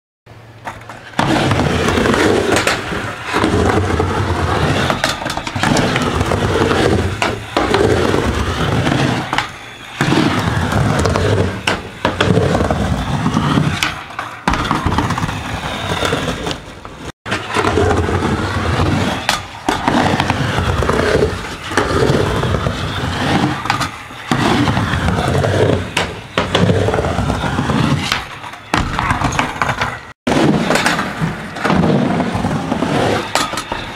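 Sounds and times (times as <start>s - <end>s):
skateboard wheels rolling on ramp: 0.3s - 33.9s
skateboard clacks: 0.5s - 33.9s.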